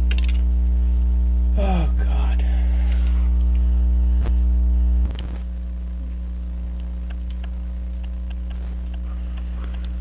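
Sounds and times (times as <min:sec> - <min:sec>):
electrical mains hum: 0:00.0 - 0:10.0
click: 0:06.8 - 0:10.0.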